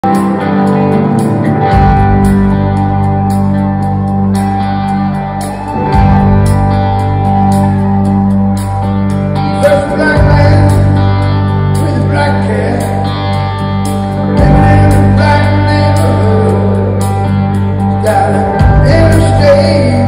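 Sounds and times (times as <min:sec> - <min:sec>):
drums: 0:00.0 - 0:20.0
low bass line: 0:00.0 - 0:20.0
strummed guitars: 0:00.0 - 0:20.0
man singing: 0:09.4 - 0:13.5, 0:14.1 - 0:20.0.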